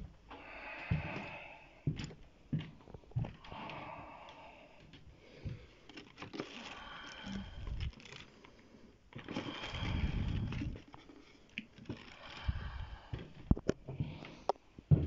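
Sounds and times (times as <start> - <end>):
breathy hissing: 3.6 - 10.8, 11.9 - 13.4
rustling: 5.7 - 13.2.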